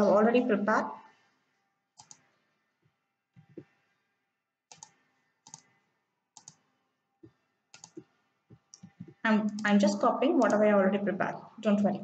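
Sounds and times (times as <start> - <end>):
computer mouse clicking: 2.0 - 2.4, 4.7 - 10.7.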